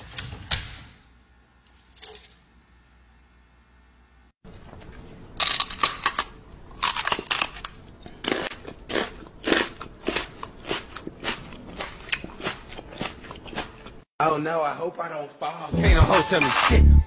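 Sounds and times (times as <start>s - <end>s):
man making crunching chewing noises: 6.8s - 14.0s.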